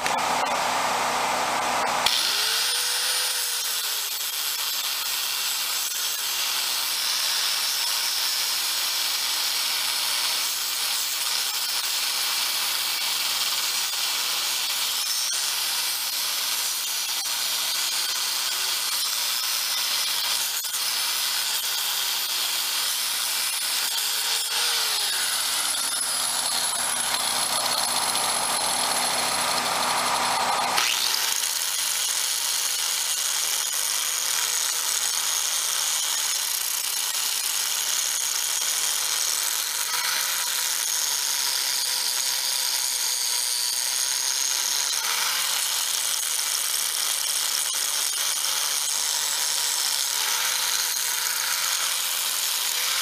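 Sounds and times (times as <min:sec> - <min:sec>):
electric grinder on steel rail: 0:00.0 - 0:53.0.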